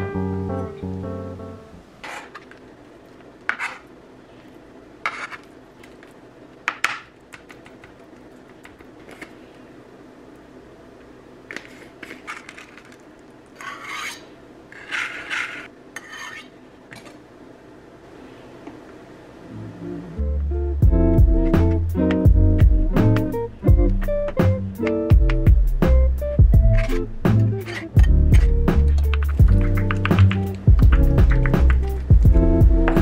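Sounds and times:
knife blade scraping board: 0:02.0 - 0:02.5, 0:03.5 - 0:03.8, 0:05.0 - 0:05.5, 0:13.6 - 0:16.6, 0:27.6 - 0:28.4.

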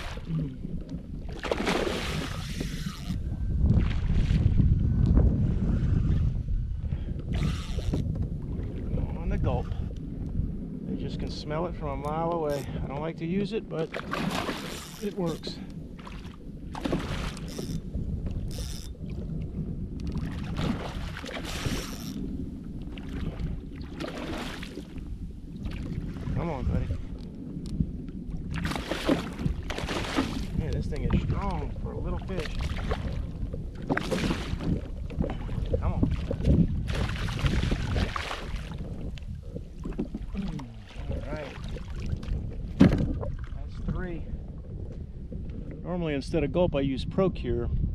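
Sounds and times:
water splashing around kayak: 0:00.0 - 0:46.5
wind on microphone: 0:00.0 - 0:47.9
fish thrashing and splashing: 0:01.2 - 0:03.2, 0:13.9 - 0:15.2, 0:28.5 - 0:30.6, 0:32.5 - 0:39.0
low rumble: 0:03.0 - 0:14.0, 0:15.5 - 0:47.9.

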